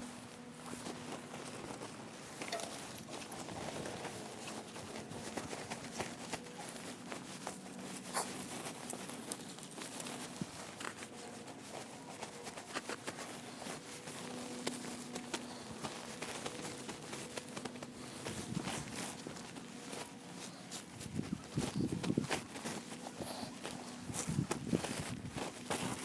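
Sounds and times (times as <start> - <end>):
fabric rustling and crinkling: 0.0 - 26.0
soft taps and scuffs: 0.0 - 26.0.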